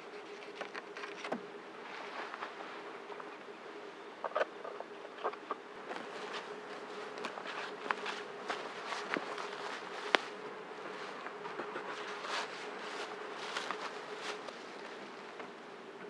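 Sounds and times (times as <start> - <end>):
rustling of dry leaves and clothing: 0.0 - 3.3, 5.7 - 15.5
faint steady hum: 0.0 - 16.0
footsteps through leaf litter: 6.0 - 11.2, 12.0 - 14.8.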